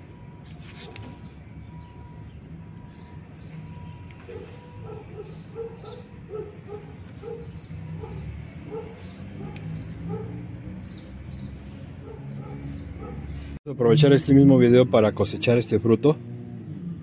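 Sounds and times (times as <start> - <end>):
birds chirping: 1.0 - 13.6
lower-pitched bird calls: 1.0 - 13.6.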